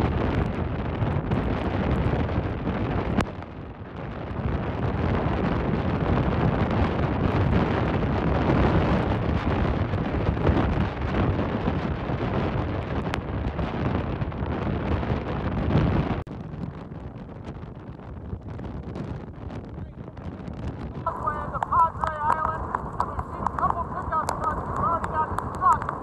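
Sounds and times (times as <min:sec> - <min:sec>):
wind buffeting microphone: 0:00.0 - 0:26.0
waves breaking and washing: 0:21.0 - 0:26.0.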